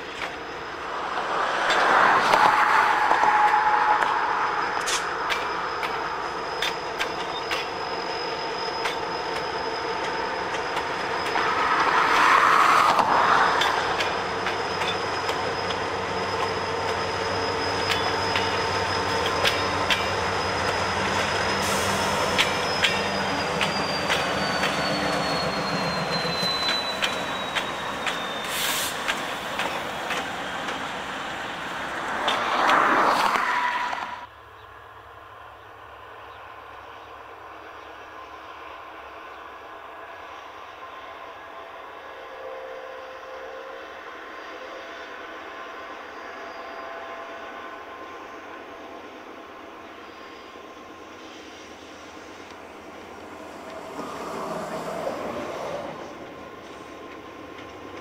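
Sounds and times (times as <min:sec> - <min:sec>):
high wheel squeal: 0:00.0 - 0:34.3, 0:40.6 - 0:58.0
distant train: 0:00.0 - 0:58.0
train wheels clicking over rail: 0:26.1 - 0:30.9.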